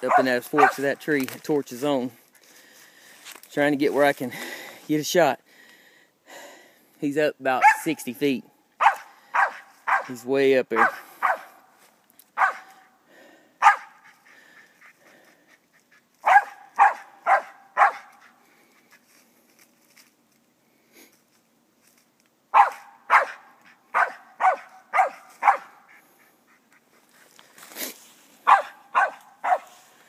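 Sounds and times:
dog barking: 0.0 - 0.9, 7.6 - 7.9, 8.8 - 10.2, 10.8 - 11.6, 12.4 - 12.9, 13.6 - 14.0, 16.2 - 18.2, 22.5 - 25.9, 28.4 - 29.8.

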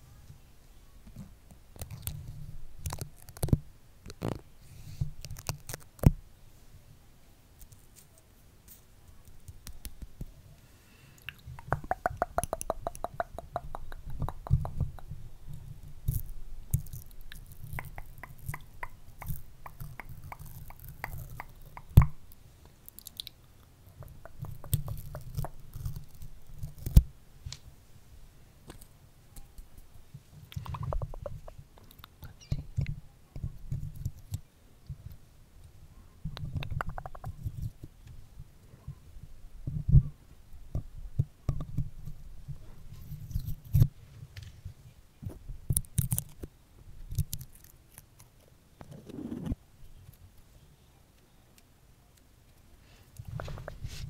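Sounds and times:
stickers crackling on microphone: 1.1 - 6.2, 11.3 - 23.3, 24.0 - 27.6, 28.7 - 34.4.

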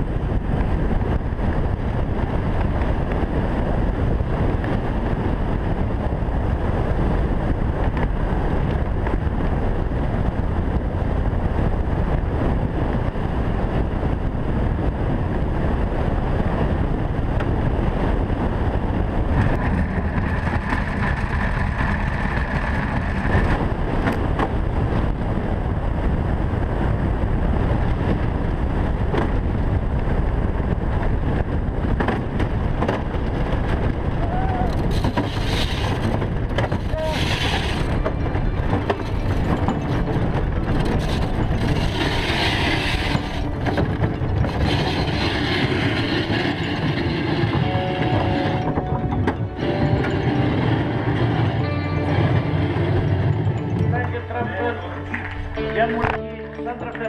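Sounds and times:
wind buffeting microphone: 0.0 - 57.0
runners rushing on ice: 19.3 - 23.6
high scraping tone: 36.8 - 57.0.

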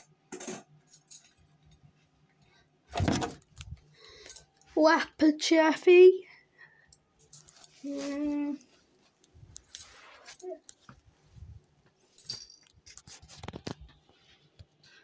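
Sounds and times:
plush toys rustling: 7.2 - 11.7.

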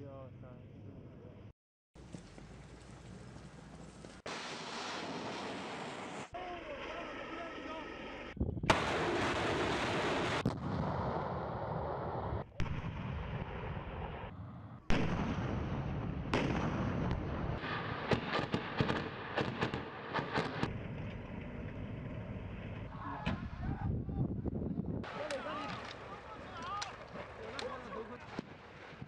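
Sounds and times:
heavy gun blasts echoing: 8.7 - 14.2, 14.9 - 23.6.

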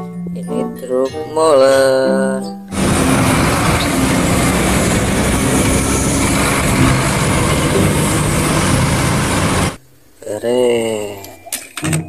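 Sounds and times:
diesel truck engine drone: 2.7 - 9.8
road noise rushing: 2.7 - 9.8.

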